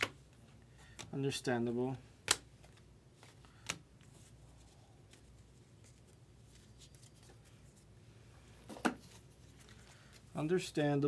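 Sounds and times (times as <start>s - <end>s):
soft ticks and rustles of cards: 2.3s - 7.9s, 9.1s - 11.0s.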